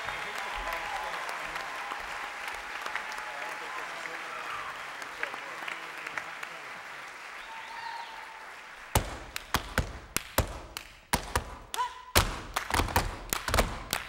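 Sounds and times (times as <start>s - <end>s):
sharp hand claps: 0.0s - 14.0s
stomps on wooden stage floor: 9.0s - 14.0s.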